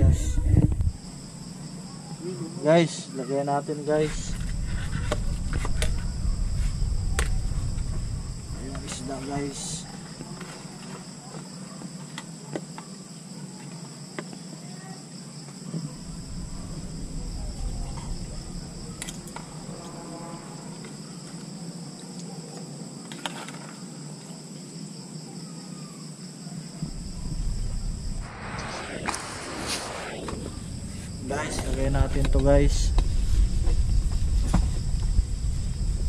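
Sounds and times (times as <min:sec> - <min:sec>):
insects trilling: 0:00.0 - 0:36.0
low rumble: 0:04.2 - 0:09.1, 0:16.0 - 0:19.9, 0:26.8 - 0:36.0
loud noisy burst: 0:26.8 - 0:33.0.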